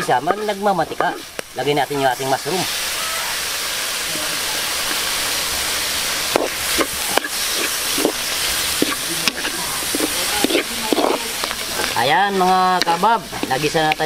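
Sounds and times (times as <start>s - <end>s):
food sizzling in hot oil: 0.0s - 14.0s
spatula scraping and knocking pan: 8.8s - 14.0s.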